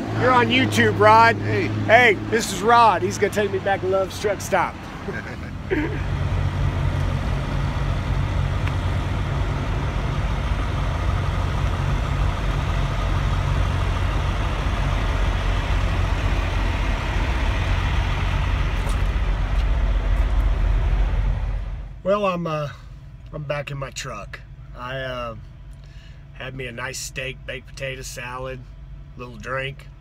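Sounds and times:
diesel truck engine idling: 0.0 - 23.2.

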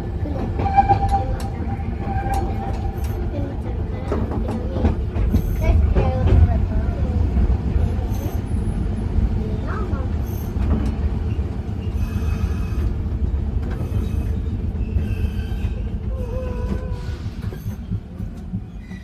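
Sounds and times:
tram wheels rumbling: 0.0 - 19.0
wheels squealing on rails: 0.3 - 4.2, 9.7 - 19.0.

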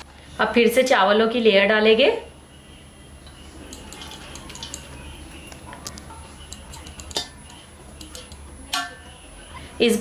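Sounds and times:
low steady hum: 2.0 - 10.0
metal spoon clinking on pot: 3.2 - 5.0, 5.9 - 9.1.

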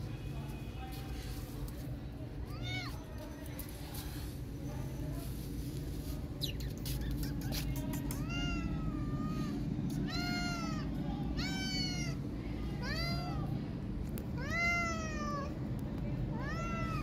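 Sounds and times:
kitten meowing: 8.2 - 10.8, 11.4 - 12.2.

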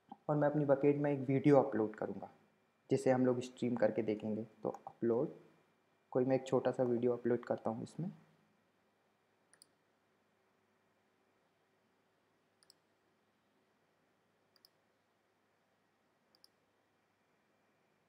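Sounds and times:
faint mouse clicks: 9.5 - 9.8, 12.6 - 13.0, 14.5 - 14.9, 16.3 - 16.6.

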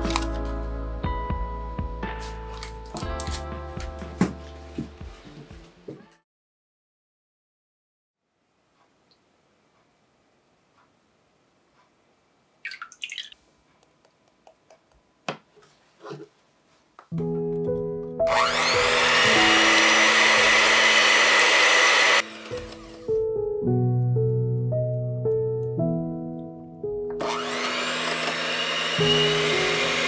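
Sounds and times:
background music: 0.0 - 6.2, 17.1 - 30.0
soft handling sounds: 15.4 - 17.0
electric hand mixer whirring: 18.3 - 23.1, 27.2 - 30.0.

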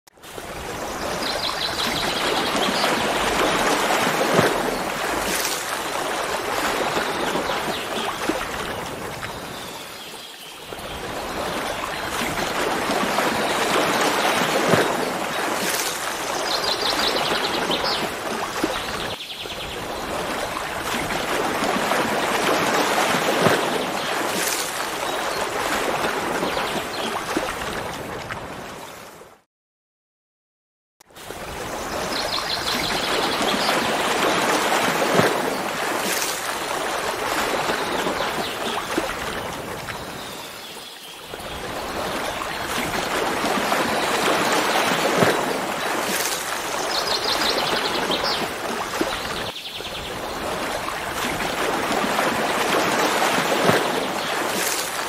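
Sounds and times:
stream water rushing and splashing: 0.1 - 29.4, 31.1 - 55.0.

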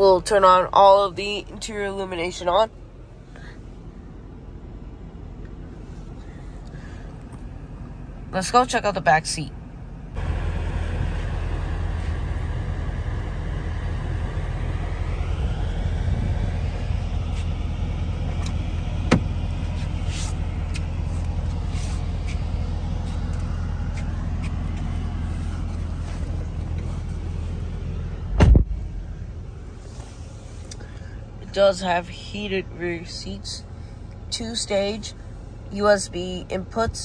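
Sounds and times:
engine idling: 0.0 - 37.0
car door shutting: 18.4 - 19.4, 28.3 - 28.8.

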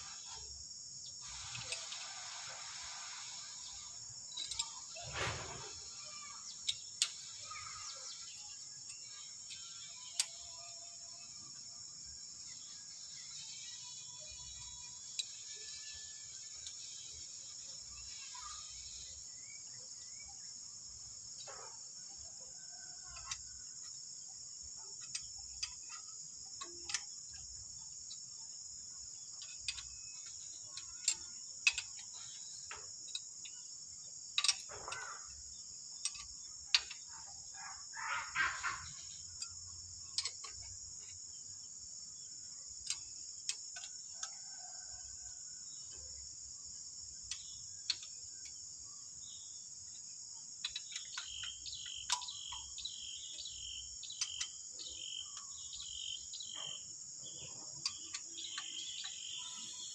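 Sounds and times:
insect chirring: 0.0 - 59.9
hand tools clicking on metal: 8.2 - 10.5, 24.9 - 28.4, 29.2 - 33.7, 34.3 - 37.6, 38.3 - 41.2, 49.9 - 59.9.

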